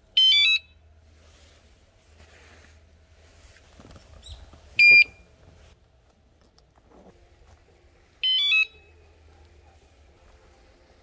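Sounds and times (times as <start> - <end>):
bicycle alarm beep: 0.1 - 0.8, 4.8 - 5.2, 8.2 - 9.0.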